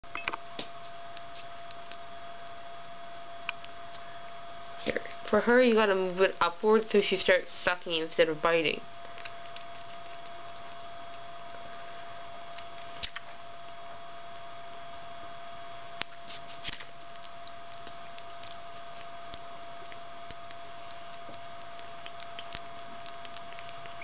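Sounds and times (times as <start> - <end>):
background hiss and hum: 0.0 - 24.0
kitten suckling wet clicks: 0.8 - 2.1, 9.0 - 11.8, 12.4 - 13.8, 15.9 - 24.0.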